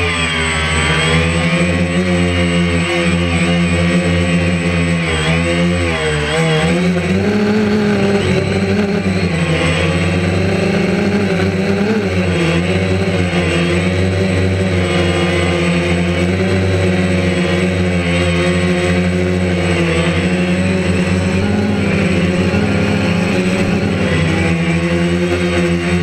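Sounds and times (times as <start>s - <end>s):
drone motors buzzing: 0.0s - 26.0s.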